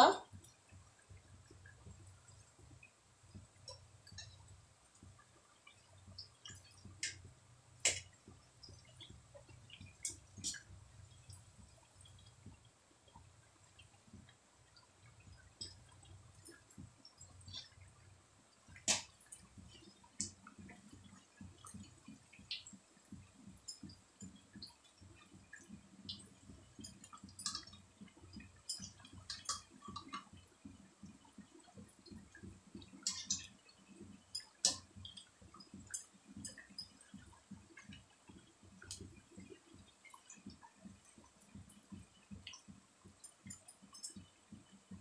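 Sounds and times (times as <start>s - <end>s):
oil sizzling with crackles: 0.0s - 45.0s.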